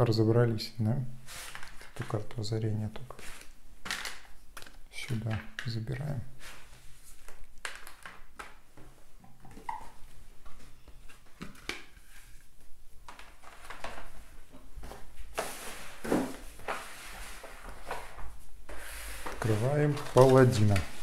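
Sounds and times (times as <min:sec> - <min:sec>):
cards tapping and rustling: 0:03.1 - 0:05.8, 0:07.1 - 0:09.8, 0:10.4 - 0:12.2, 0:13.0 - 0:14.2, 0:19.2 - 0:21.0.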